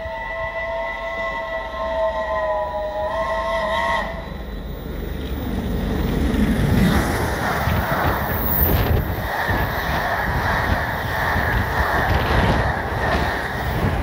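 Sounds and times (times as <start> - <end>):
steam locomotive whistle: 0.0 - 4.8
locomotive rushing past: 2.2 - 14.0.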